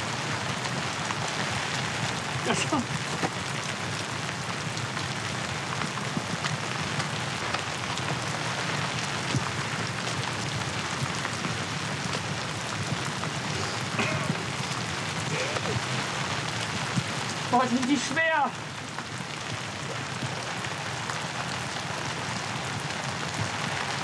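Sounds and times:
heavy rain falling: 0:00.0 - 0:24.0.

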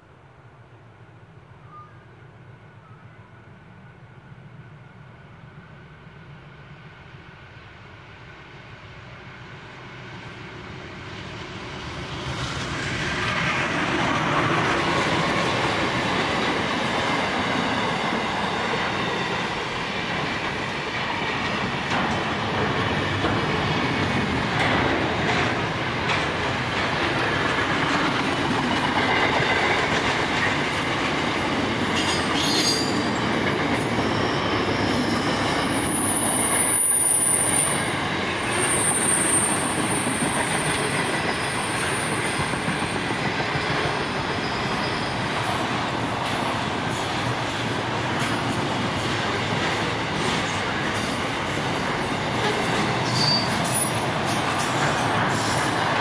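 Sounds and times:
diesel locomotives passing: 0:00.0 - 0:56.0
train wagons rumbling: 0:10.7 - 0:56.0
wheel clatter over rail joints: 0:21.4 - 0:31.2
high wheel squeal: 0:32.0 - 0:42.6, 0:44.3 - 0:45.7, 0:52.4 - 0:55.7.

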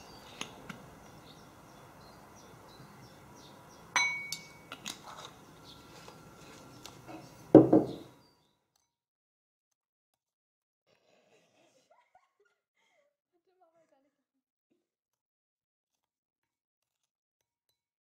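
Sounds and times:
metal spoon clinking on ceramic bowl: 0:04.0 - 0:04.7
dull knock: 0:07.6 - 0:08.1.

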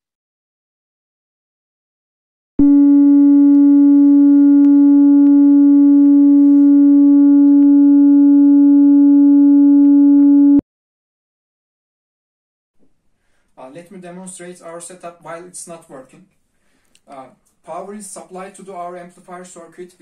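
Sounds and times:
steady low tone from speaker: 0:02.6 - 0:10.6.

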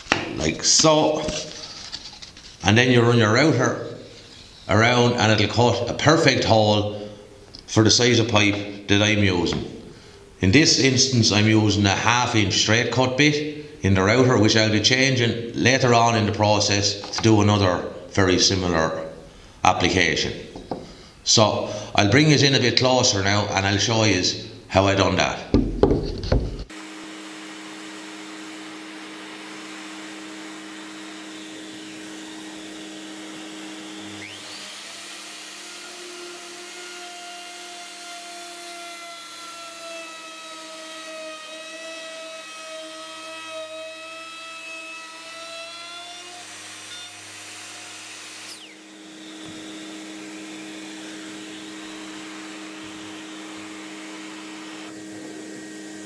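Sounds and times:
router whining cutting wood: 0:26.3 - 0:56.0
dust extractor running: 0:26.7 - 0:35.8, 0:48.0 - 0:56.0.

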